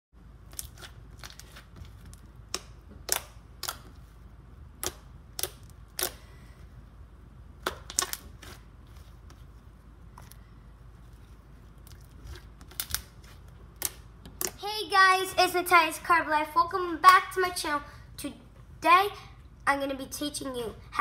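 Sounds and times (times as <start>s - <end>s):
slime clicking and popping: 4.8s - 6.2s, 7.6s - 8.5s, 11.9s - 13.1s.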